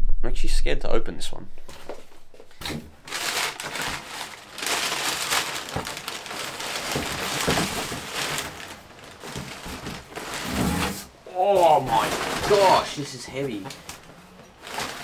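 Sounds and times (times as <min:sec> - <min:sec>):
packaging tearing and crinkling: 0:03.1 - 0:15.0.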